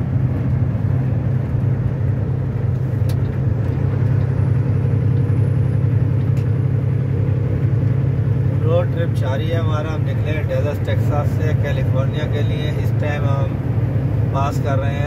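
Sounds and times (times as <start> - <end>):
road and wind noise: 0.0 - 15.0
truck engine drone: 0.0 - 15.0.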